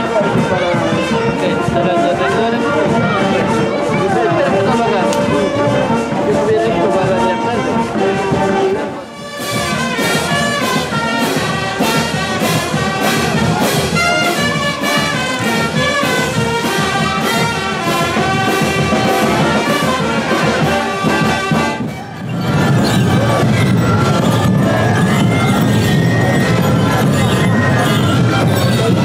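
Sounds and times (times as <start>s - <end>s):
brass band playing: 0.0s - 29.0s
steady drum beat: 9.2s - 29.0s.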